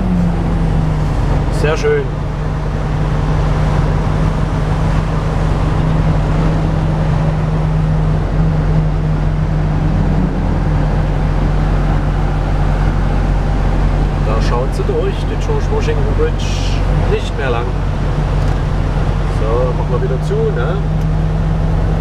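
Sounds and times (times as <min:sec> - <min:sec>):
road noise: 0:00.0 - 0:22.0
truck diesel engine droning: 0:00.0 - 0:22.0.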